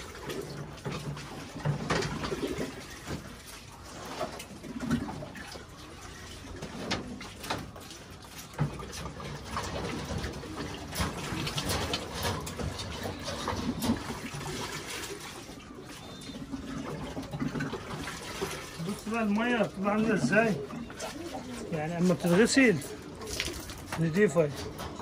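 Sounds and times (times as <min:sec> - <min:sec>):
drinkers knocking and clattering: 0:00.0 - 0:03.3, 0:08.4 - 0:14.4, 0:22.0 - 0:25.0
pigeons cooing: 0:00.0 - 0:25.0
water splashing: 0:00.0 - 0:25.0.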